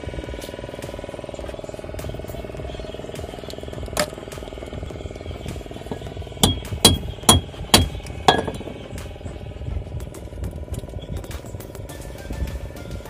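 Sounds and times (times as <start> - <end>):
metal pipe hammering shell on wood: 5.9 - 8.8.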